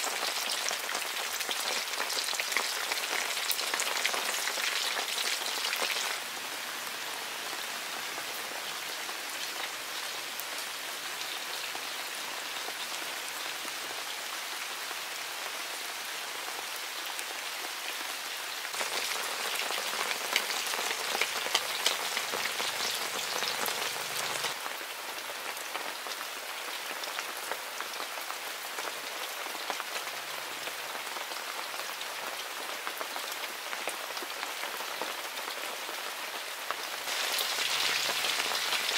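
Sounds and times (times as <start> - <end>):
fish sizzling in oil: 0.0 - 6.2, 18.8 - 24.6, 37.1 - 38.9.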